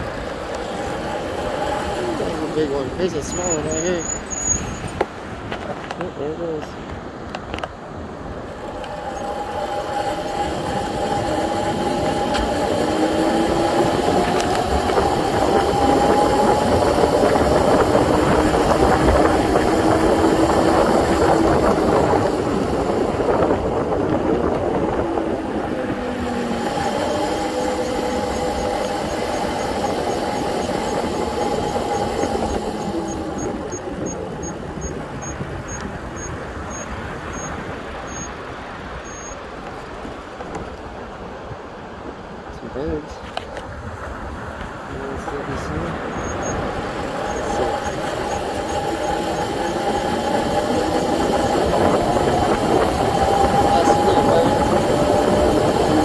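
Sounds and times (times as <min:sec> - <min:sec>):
electric bike motor whining: 0:00.0 - 0:05.0, 0:08.2 - 0:40.7, 0:45.2 - 0:56.0
tyre and wind noise: 0:00.0 - 0:56.0
faint high ticking: 0:26.3 - 0:38.4.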